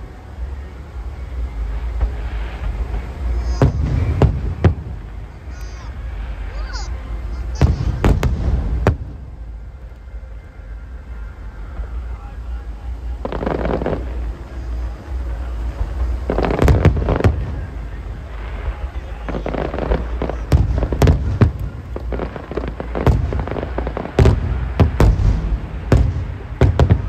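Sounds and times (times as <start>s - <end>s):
low rumble: 0.0s - 27.0s
firework shells bursting: 13.2s - 27.0s.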